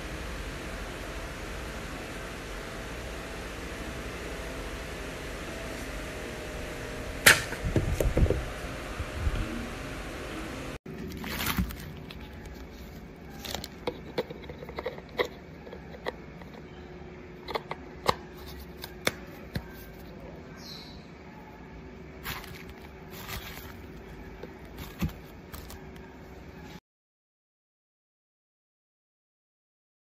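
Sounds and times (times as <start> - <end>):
faint steady hum: 0.0 - 26.8
plastic parts clicking and scraping: 10.9 - 16.7, 17.4 - 19.8, 22.2 - 26.0.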